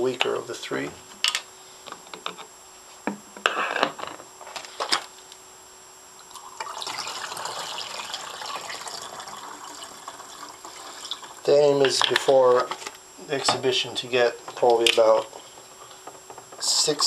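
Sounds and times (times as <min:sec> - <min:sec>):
liquid pouring into bottle: 0:06.2 - 0:11.5.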